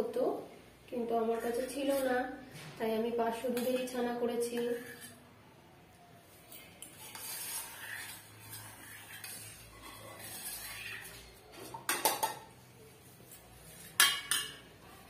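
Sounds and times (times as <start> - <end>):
spoon scraping a saucepan: 1.4 - 2.4, 3.4 - 5.2, 6.4 - 14.8.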